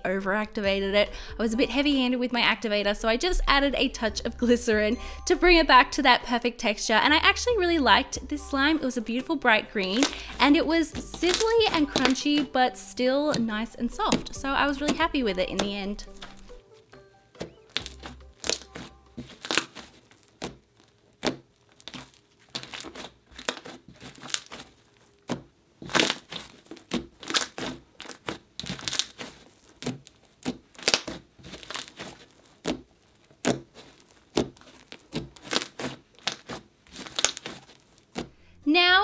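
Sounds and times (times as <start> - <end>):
slime crackling and popping: 9.8 - 16.6, 17.3 - 38.4.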